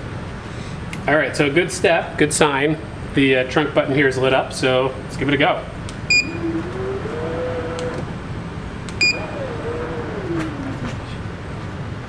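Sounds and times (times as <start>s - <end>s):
electric strut motors whining: 6.0s - 11.2s.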